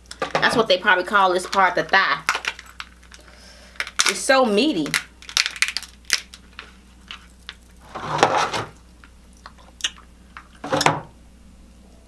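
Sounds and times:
crab shell cracking and clicking: 2.3 - 4.2, 4.8 - 7.7, 9.0 - 10.5.

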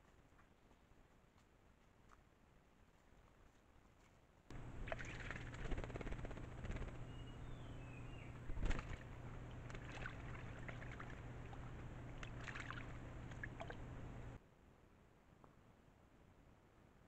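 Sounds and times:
bird splashing in water: 4.5 - 14.4
low hum: 4.5 - 14.4
whistled bird calls: 7.0 - 8.9.

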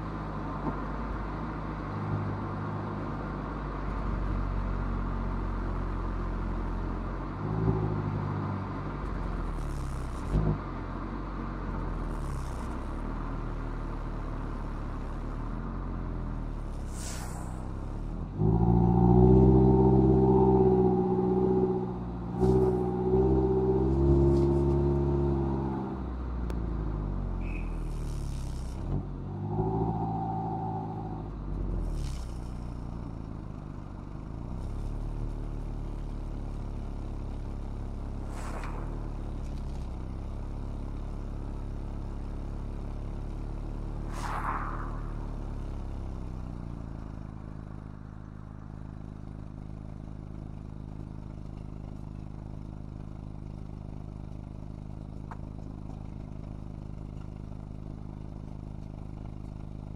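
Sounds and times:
car engine revving: 18.3 - 26.1, 27.0 - 32.7, 37.9 - 41.5, 43.7 - 47.2.

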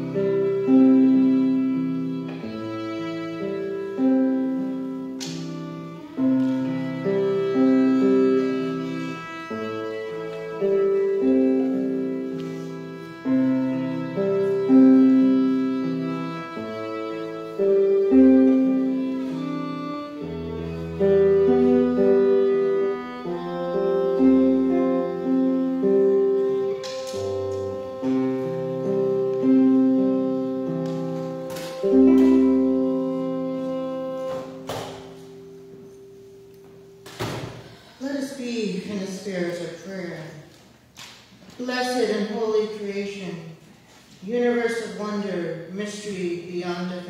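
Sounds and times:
violin melody: 0.0 - 37.0.

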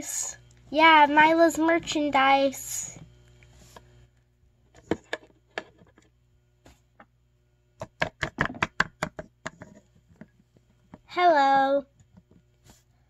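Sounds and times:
plastic toy tapping on tabletop: 7.8 - 9.8.

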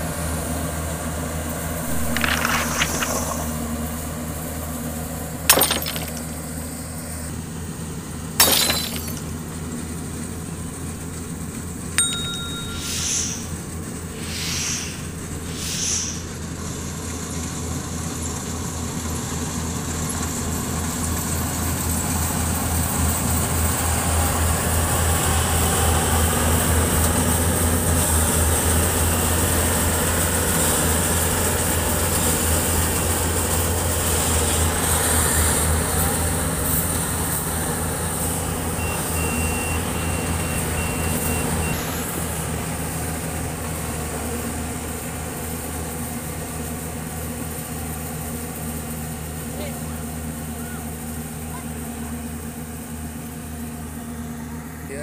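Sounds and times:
combine harvester engine: 0.0 - 5.6, 9.2 - 55.0
high electronic beeps: 12.0 - 13.6.

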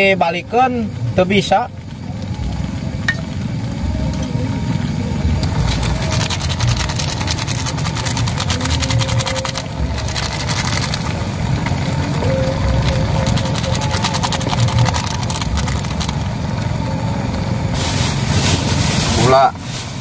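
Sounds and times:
dense fast crackle: 0.0 - 20.0
steady low rumble: 0.0 - 20.0.

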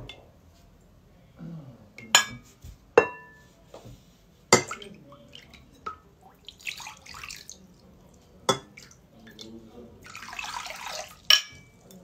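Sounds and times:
metal ladle clinking on ceramic: 3.0 - 3.4, 4.5 - 4.9, 8.5 - 8.8, 11.2 - 12.0
liquid dripping: 4.5 - 12.0.

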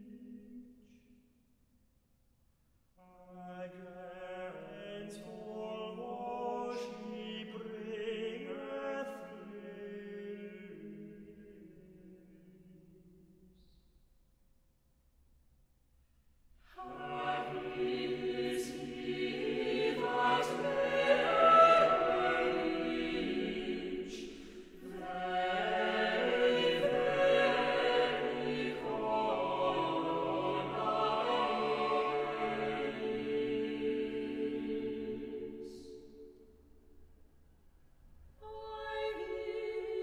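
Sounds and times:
choir singing unaccompanied: 16.8 - 36.2, 38.4 - 40.0.

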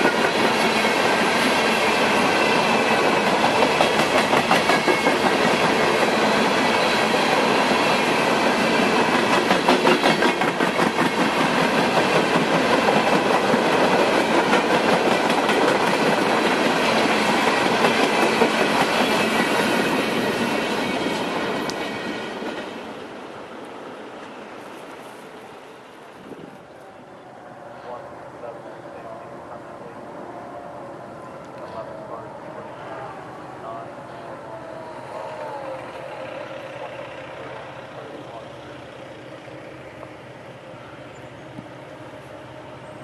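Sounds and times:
freight train wheels clacking: 0.0 - 23.0.

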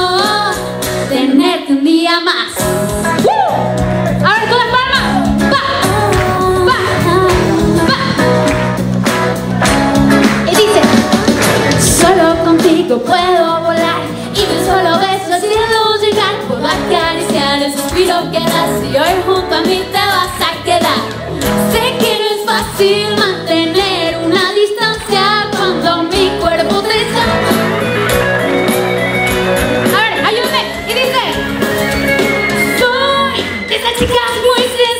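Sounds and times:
woman singing into microphone: 0.0 - 2.7, 4.2 - 8.5, 11.8 - 27.8, 32.7 - 34.9.

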